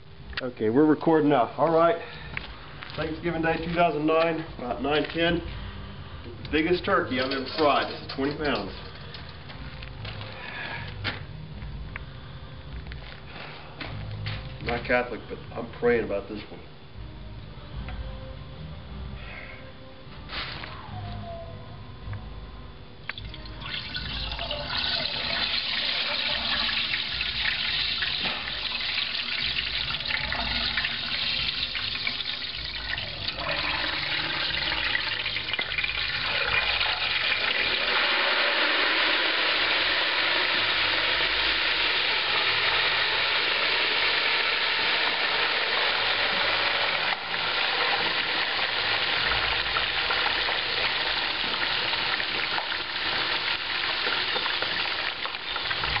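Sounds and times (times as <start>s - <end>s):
oil sizzling and bubbling: 23.1s - 56.0s.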